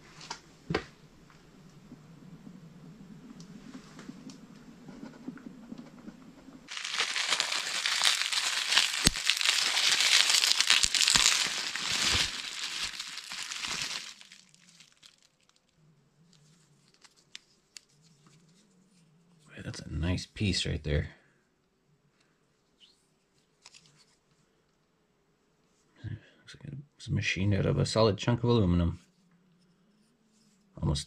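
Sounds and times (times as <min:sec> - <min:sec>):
bubble wrap crinkling: 0:06.7 - 0:15.7, 0:16.3 - 0:18.0.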